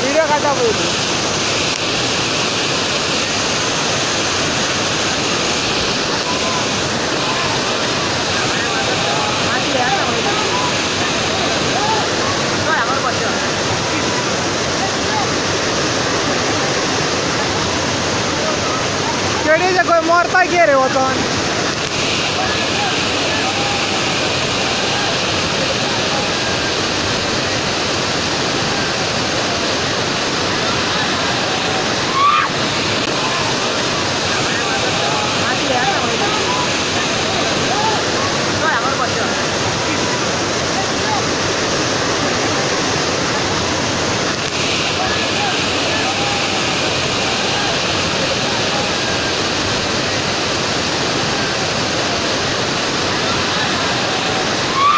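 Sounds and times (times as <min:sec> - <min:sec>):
waterfall rushing onto rocks: 0:00.0 - 0:54.9.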